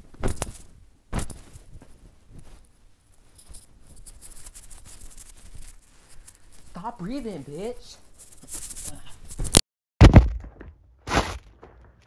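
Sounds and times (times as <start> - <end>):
fabric rustling against microphone: 0.0 - 9.6
sharp knock: 10.0 - 12.0.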